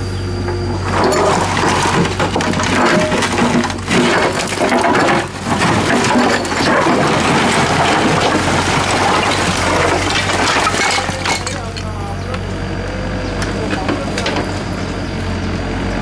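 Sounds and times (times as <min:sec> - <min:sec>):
low engine hum: 0:00.0 - 0:04.6, 0:11.1 - 0:16.0
excavator bucket scraping rubble: 0:00.4 - 0:12.2, 0:13.4 - 0:14.8
debris knocks and cracks: 0:00.7 - 0:11.9.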